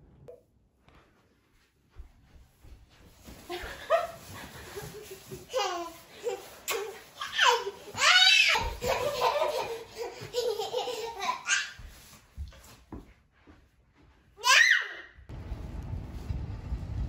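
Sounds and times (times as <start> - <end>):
baby laughing and squealing: 5.5 - 11.8.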